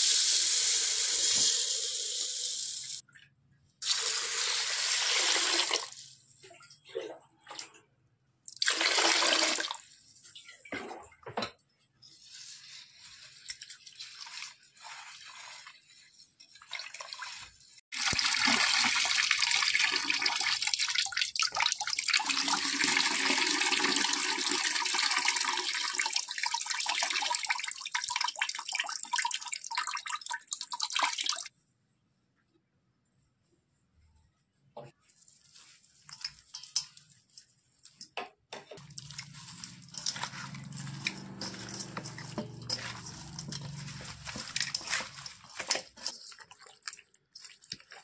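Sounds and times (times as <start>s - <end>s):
water poured into steel bowl: 38.8s - 48.0s
water splashing: 38.8s - 48.0s.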